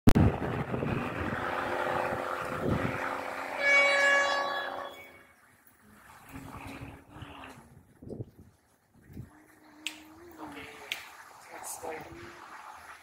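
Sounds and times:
rushing noise: 0.1 - 5.3
train horn blast: 1.9 - 5.4.

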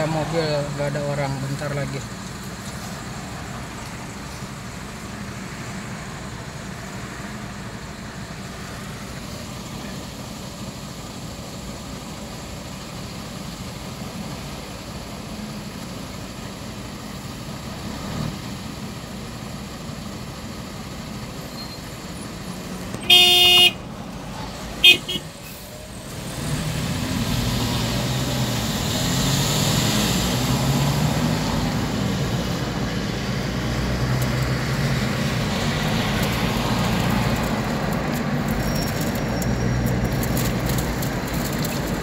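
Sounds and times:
traffic noise from inside a car: 0.0 - 42.0
car horn honk: 22.9 - 23.8, 24.8 - 25.4.

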